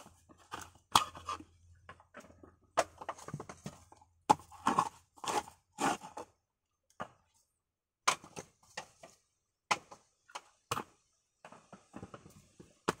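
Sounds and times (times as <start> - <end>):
coconut meat being scraped: 4.5 - 6.3.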